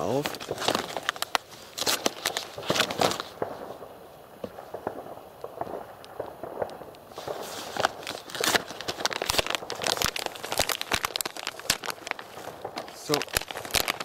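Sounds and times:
plastic wrapping crinkling and tearing: 0:00.0 - 0:03.7, 0:07.1 - 0:14.0.

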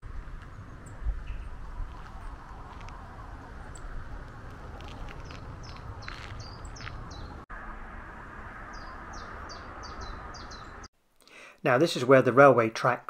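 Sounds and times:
outdoor background noise: 0:00.0 - 0:13.0
small songbirds chirping: 0:00.2 - 0:07.4, 0:08.6 - 0:11.6.

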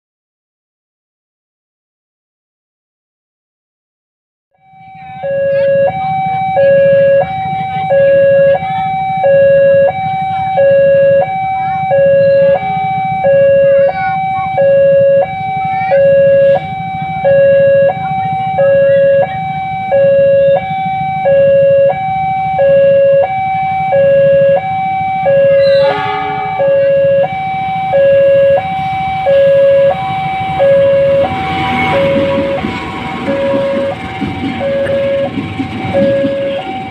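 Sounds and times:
level crossing two-tone alarm: 0:04.6 - 0:36.9
low steady rumble: 0:10.7 - 0:36.9.

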